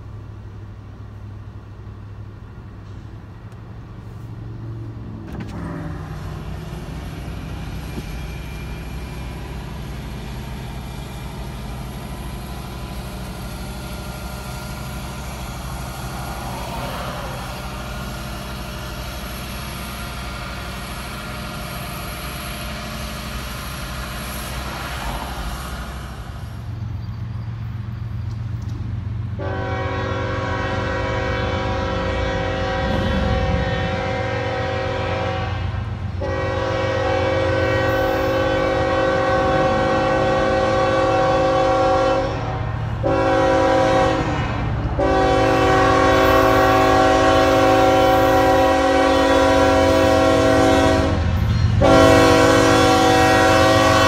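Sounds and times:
freight train rumbling past: 0:00.0 - 0:54.0
vehicles passing on road: 0:00.0 - 0:54.0
locomotive horn: 0:29.3 - 0:54.0.

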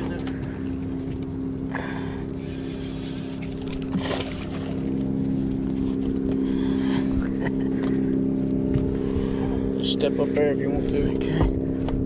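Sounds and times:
boat motor humming: 0:00.0 - 0:12.0.

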